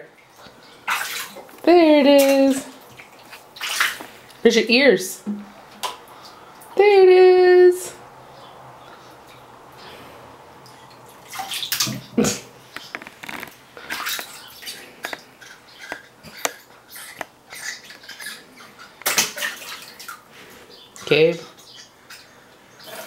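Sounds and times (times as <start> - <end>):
bath water splashing: 0.2 - 4.5, 10.5 - 20.6.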